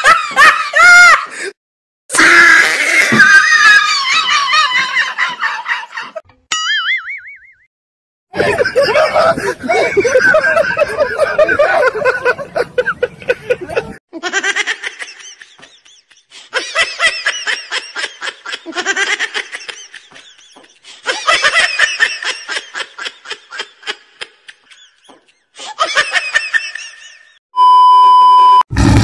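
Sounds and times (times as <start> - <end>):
high-pitched laughter: 8.4 - 27.4
one-tone test beep: 27.6 - 28.6.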